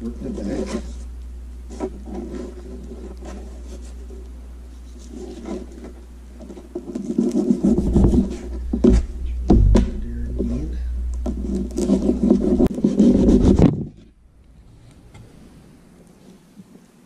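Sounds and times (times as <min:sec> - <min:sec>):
low steady hum: 0:00.0 - 0:17.0
rubbing and rasping on paper: 0:00.2 - 0:01.1, 0:01.7 - 0:09.0, 0:11.3 - 0:13.8.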